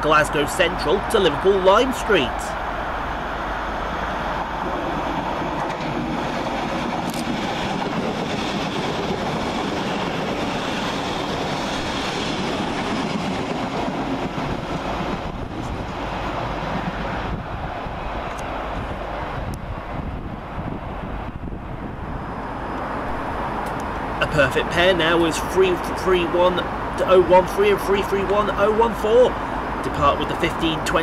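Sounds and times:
train passing at speed: 0:00.0 - 0:31.0.

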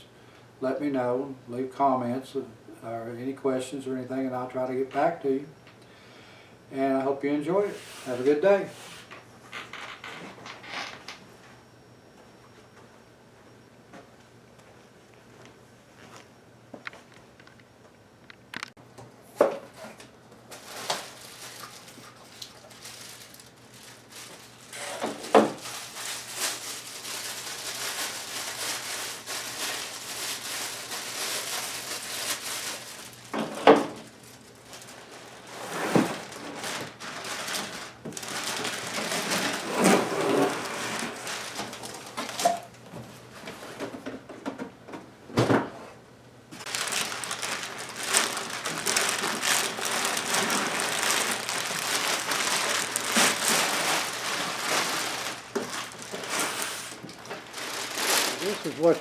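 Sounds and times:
cardboard rustling and scraping: 0:34.7 - 0:42.4, 0:46.6 - 0:59.0.

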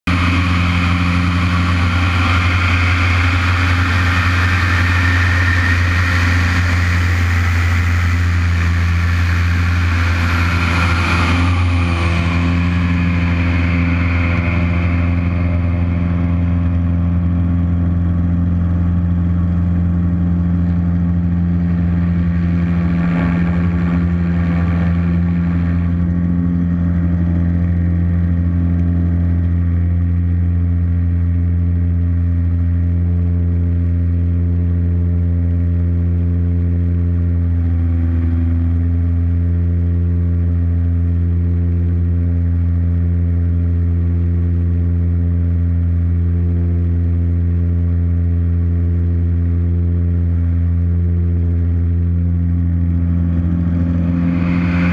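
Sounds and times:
propeller plane engine drone: 0:00.0 - 0:54.9
rushing airflow: 0:00.1 - 0:28.5, 0:52.4 - 0:54.9.

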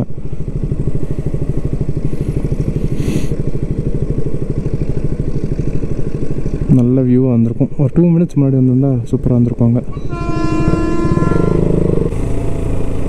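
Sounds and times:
motorbike engine idling: 0:00.0 - 0:13.0
short hiss: 0:03.0 - 0:03.4.

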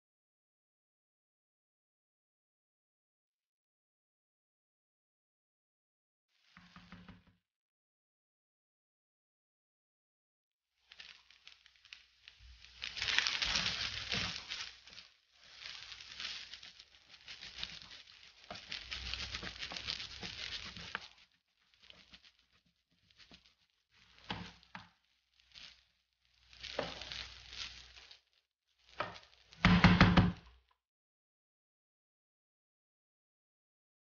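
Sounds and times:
wooden spoon scraping frying pan: 0:11.0 - 0:25.8, 0:26.4 - 0:28.2, 0:28.8 - 0:29.9.

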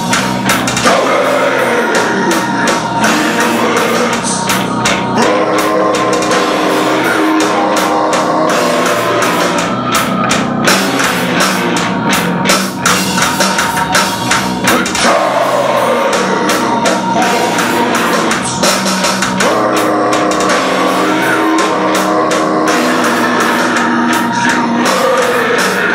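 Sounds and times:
live rock band playing: 0:00.0 - 0:25.9.

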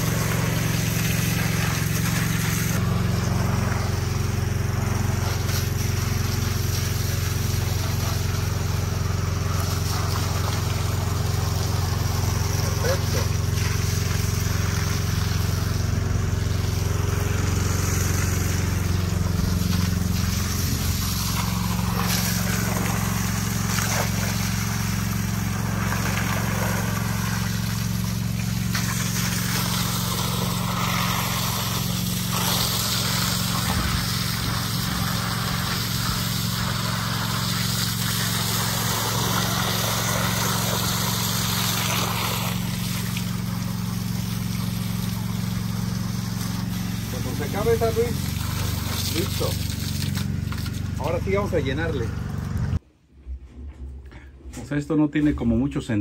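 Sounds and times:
engine running steadily: 0:00.0 - 0:52.8.

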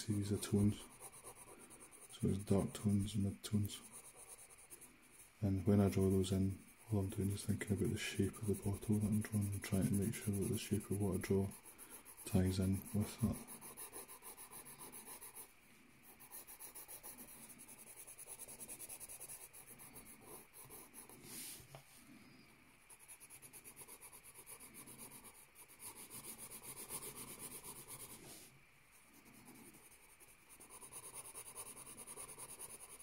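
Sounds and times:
pencil shading on paper: 0:00.0 - 0:21.5, 0:22.9 - 0:28.4, 0:29.0 - 0:33.0.

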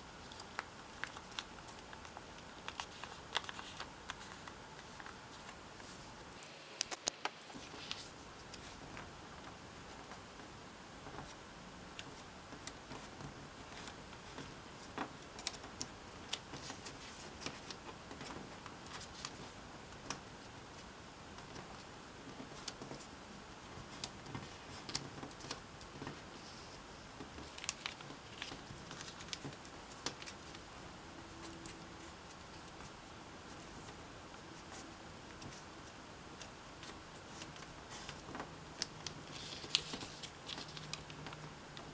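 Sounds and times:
faint steady hiss: 0:00.0 - 0:41.9
paper crackling clicks: 0:00.2 - 0:05.6, 0:27.3 - 0:30.6, 0:36.3 - 0:41.9
paper crinkling: 0:00.2 - 0:08.9, 0:23.8 - 0:30.6, 0:36.3 - 0:41.9.

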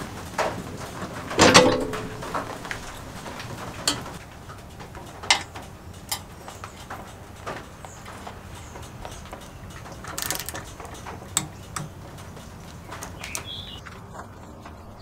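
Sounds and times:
metal clunk with ring: 0:01.4 - 0:02.5
sharp metal clicks: 0:09.4 - 0:12.3.

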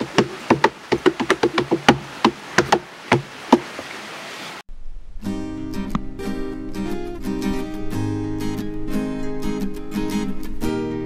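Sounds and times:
hands beating on tree root: 0:00.0 - 0:03.8
acoustic guitar music: 0:05.2 - 0:11.0.

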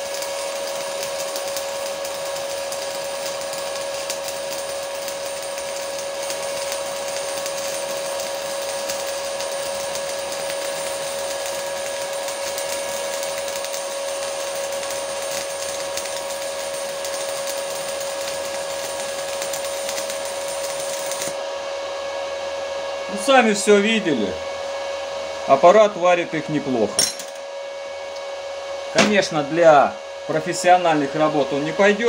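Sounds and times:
welding arc crackling hiss: 0:00.0 - 0:21.4, 0:28.9 - 0:32.0.

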